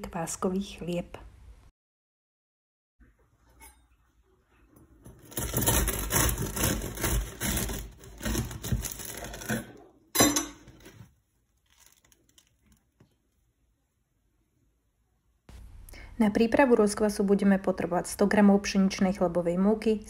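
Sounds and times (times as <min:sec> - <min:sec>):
bread knife sawing crusty bread: 0:05.2 - 0:09.6
sharp crack of crust: 0:05.3 - 0:09.6, 0:11.6 - 0:13.0.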